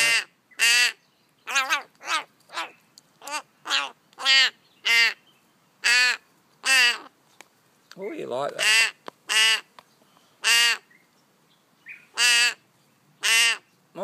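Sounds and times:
young bird harsh begging calls: 0.0 - 7.2, 8.6 - 9.7, 10.4 - 11.1, 11.8 - 13.7.

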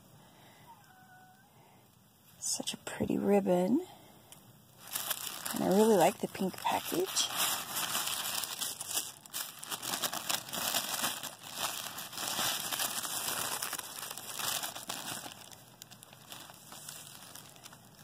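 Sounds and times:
tissue paper crinkling: 4.8 - 18.0.

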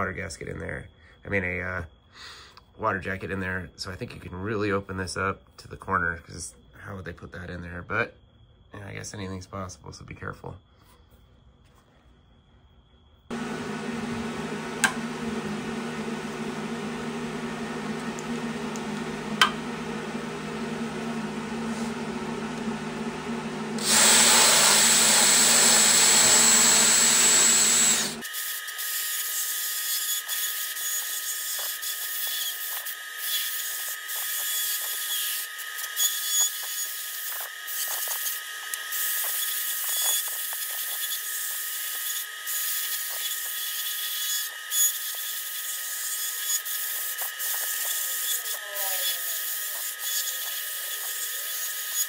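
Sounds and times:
rotary grinding tool whining: 13.3 - 52.0.

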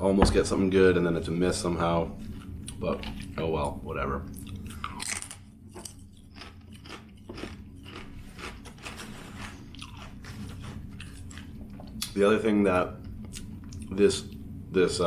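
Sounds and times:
crisp crunches of chewing: 4.4 - 12.1
biting into potato chip: 4.5 - 11.5.

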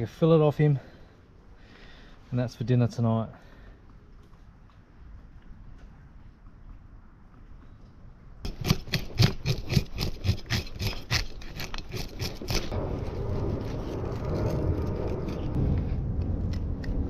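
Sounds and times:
fish scaler scraping scales: 8.5 - 15.8.

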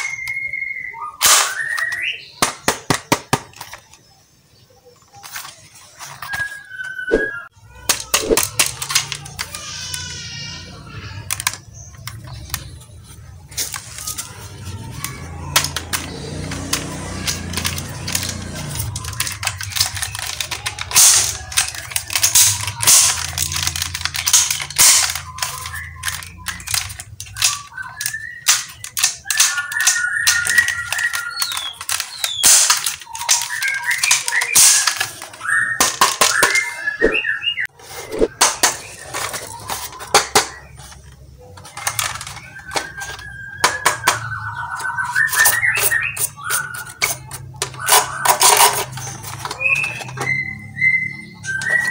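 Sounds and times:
plastic toy rifles clicking: 1.2 - 4.0, 7.8 - 10.2, 11.1 - 36.9, 38.4 - 50.5
chirping warbling tones: 6.2 - 8.4, 36.4 - 38.4.

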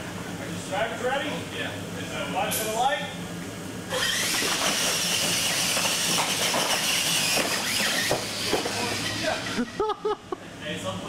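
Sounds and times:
electric motor and gear whine: 3.8 - 10.1.

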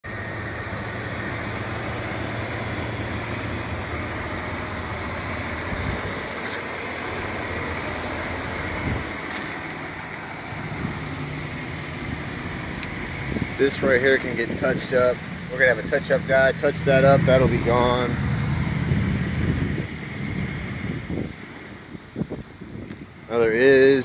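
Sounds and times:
diesel engine idling: 0.0 - 24.0.

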